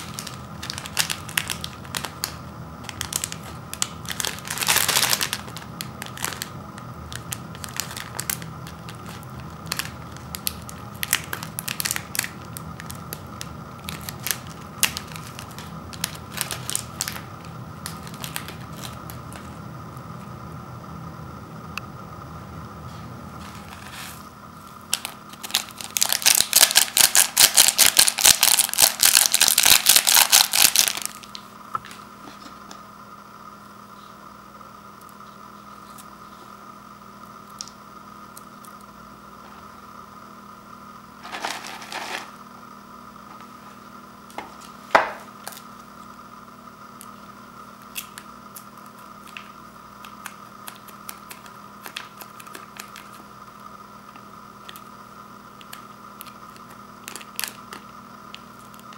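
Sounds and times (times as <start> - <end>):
paper rustle: 23.4 - 24.3, 41.2 - 42.3
dry noodles rattling in bowl: 25.0 - 31.3.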